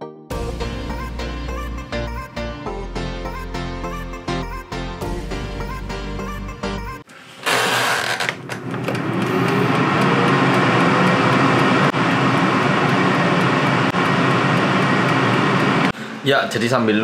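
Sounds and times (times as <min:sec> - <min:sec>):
air fryer fan whoosh: 0:08.5 - 0:16.4
timer ticking: 0:09.2 - 0:16.0.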